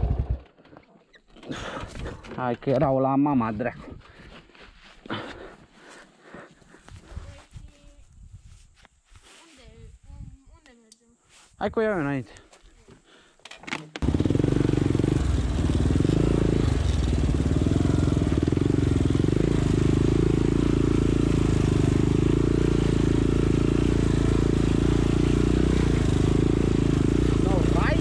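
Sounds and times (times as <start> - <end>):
atv engine running: 0.0 - 0.5, 14.0 - 28.0
rush of riding: 0.0 - 0.8, 1.4 - 10.0, 14.0 - 28.0.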